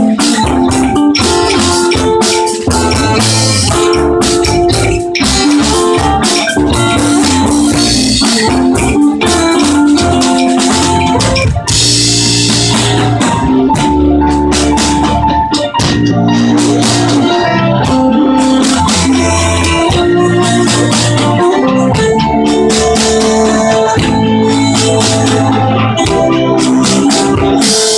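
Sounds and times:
strings and horn: 0:00.0 - 0:14.9
drum kit: 0:00.0 - 0:27.9
electric bass: 0:00.0 - 0:27.9
organ-like keyboard chords: 0:00.0 - 0:27.9.

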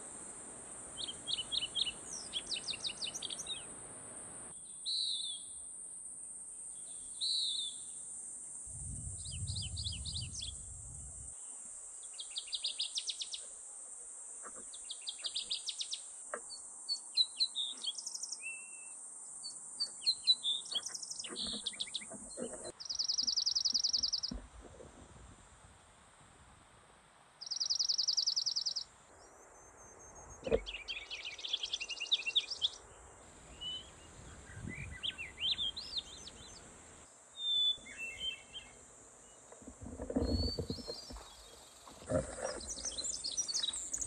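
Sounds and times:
steady high-pitched hiss: 0:00.0 - 0:44.0
small birds chirping: 0:01.0 - 0:03.7, 0:11.4 - 0:13.6, 0:14.4 - 0:24.9, 0:27.4 - 0:44.0.

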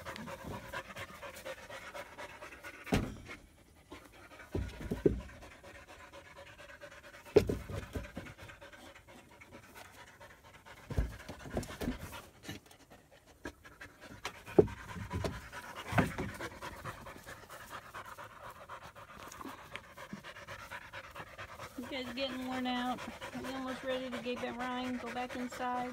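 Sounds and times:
puppies panting: 0:00.0 - 0:25.9
dull thumps: 0:14.4 - 0:17.3.

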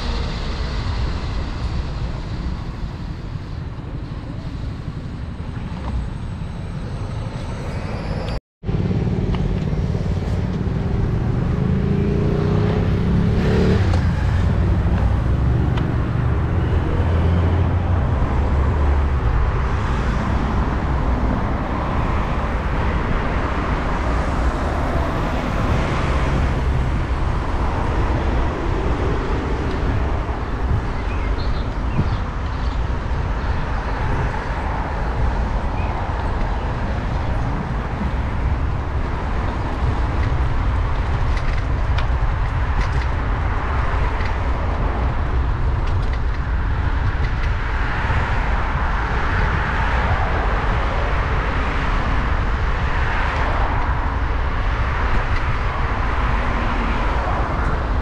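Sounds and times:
cars and bus passing: 0:00.0 - 0:58.0
rushing noise from moving bicycle: 0:00.0 - 0:58.0
vehicle engine speeding up: 0:06.1 - 0:30.9.

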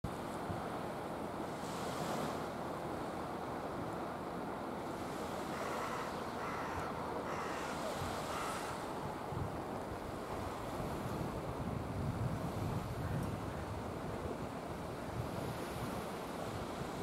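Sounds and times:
calm sea washing on shore: 0:00.1 - 0:17.0
wind on microphone: 0:05.5 - 0:17.0.

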